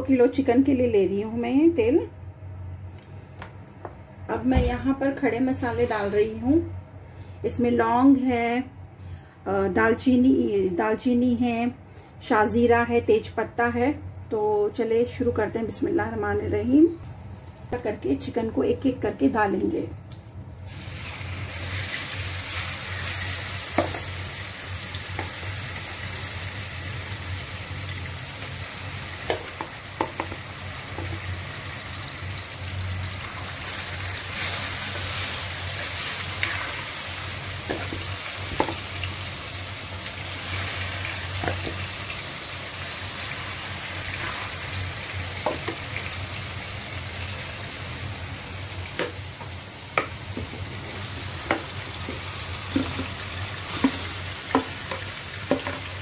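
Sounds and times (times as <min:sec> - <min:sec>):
chicken sizzling in hot oil: 0:20.6 - 0:56.0.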